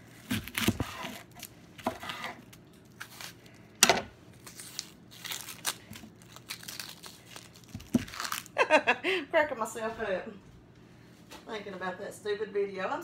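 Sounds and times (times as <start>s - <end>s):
knife cutting onion: 0.0s - 4.8s
onion skin crackling and tearing: 0.0s - 8.6s.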